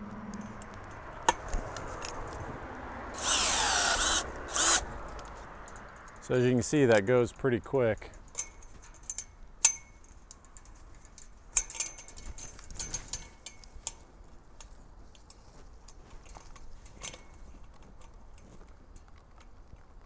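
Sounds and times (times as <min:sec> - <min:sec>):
metallic clicks of twist ties on wire: 0:08.1 - 0:14.0.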